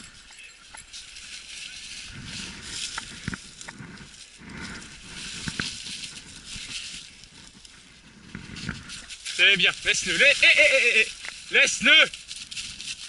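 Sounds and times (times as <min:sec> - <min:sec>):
dry leaves rustling: 0:00.0 - 0:13.0
twigs snapping: 0:02.6 - 0:13.0.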